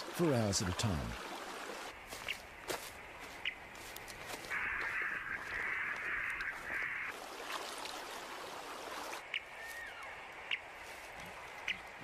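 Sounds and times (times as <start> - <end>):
crow cawing: 4.3 - 7.2.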